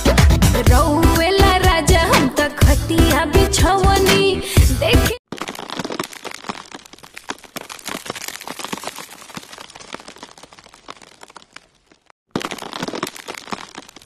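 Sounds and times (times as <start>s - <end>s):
dense crackling and clicking: 5.3s - 14.0s.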